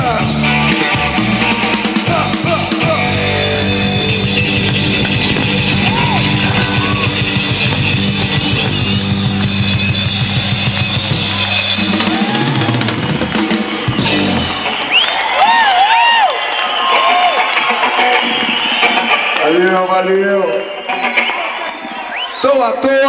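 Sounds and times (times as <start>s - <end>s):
drum kit driving beat: 0.0s - 19.4s
electric guitar: 0.0s - 22.8s
held bass note: 2.1s - 12.4s.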